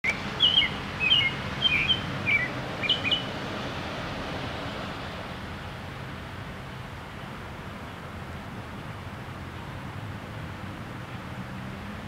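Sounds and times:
robin singing: 0:00.0 - 0:03.3
background noise: 0:00.0 - 0:12.0.

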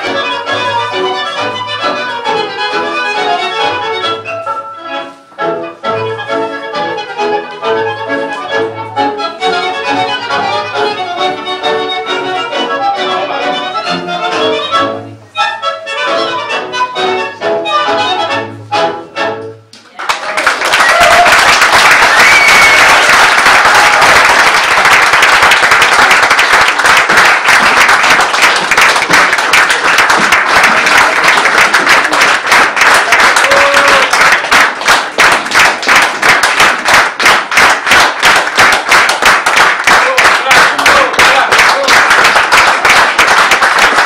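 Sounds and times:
tango music: 0:00.0 - 0:19.9, 0:20.9 - 0:44.0
audience applauding: 0:19.9 - 0:44.0.

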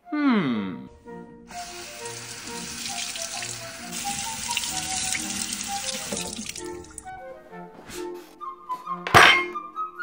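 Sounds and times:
faucet water running into sink: 0:01.5 - 0:07.1.

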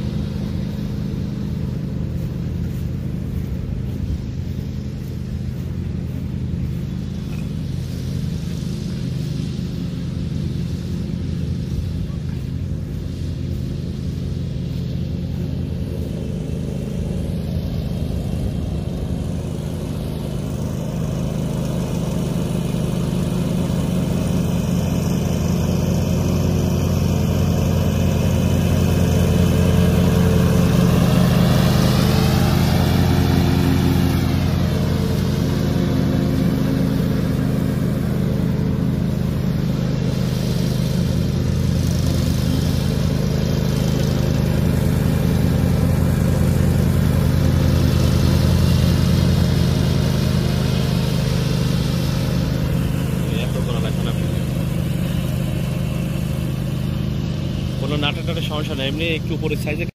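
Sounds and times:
riding mower engine running: 0:00.0 - 0:59.9.

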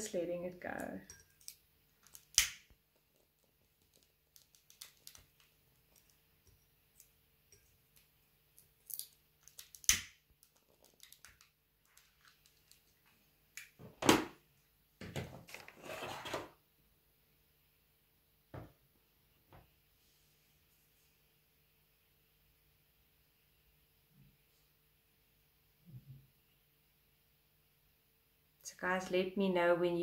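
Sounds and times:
burning leaf crackling: 0:01.4 - 0:06.1.

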